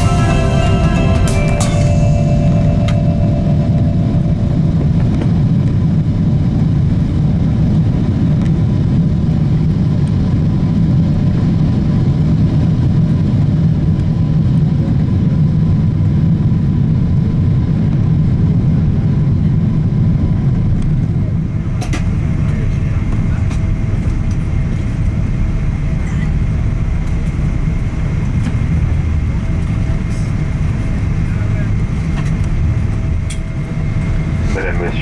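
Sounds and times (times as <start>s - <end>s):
faint high whine: 0.0s - 6.9s
airliner cabin rumble: 0.0s - 35.0s
engine and wheel noise: 2.9s - 35.0s.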